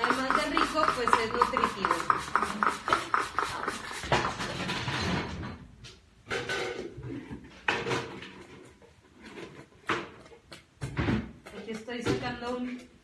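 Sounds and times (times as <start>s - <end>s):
scraping on cutting board: 0.0s - 5.1s
utensils and dishes clicking: 0.0s - 5.4s.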